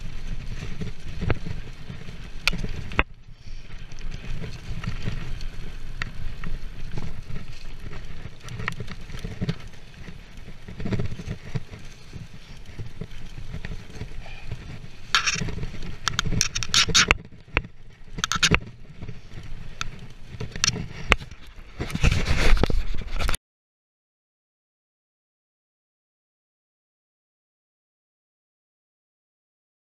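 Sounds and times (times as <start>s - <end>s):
tyres rumbling on dirt: 0.0s - 22.4s
bike clicking and rattling: 0.0s - 23.4s
hissing crunching noise: 0.0s - 23.4s.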